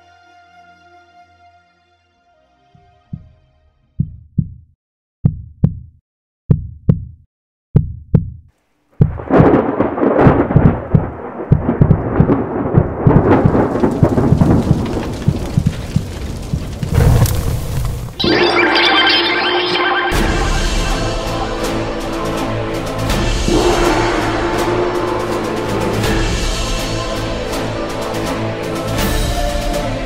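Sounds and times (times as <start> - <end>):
heartbeat thumps: 3.1 - 3.3, 4.0 - 7.2, 7.8 - 16.7
thunder-like rumble with crackling: 9.0 - 18.2.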